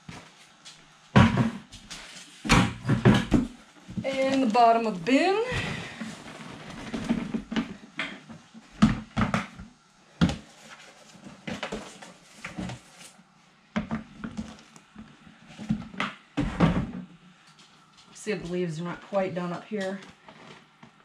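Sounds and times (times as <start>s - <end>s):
plastic tub knocking and clunking: 1.2s - 1.7s, 2.5s - 4.6s, 15.6s - 17.1s.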